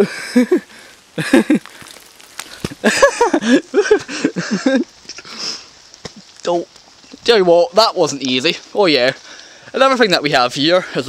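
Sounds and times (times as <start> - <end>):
heavy breathing: 0.0 - 4.6, 5.2 - 5.8, 9.2 - 9.8.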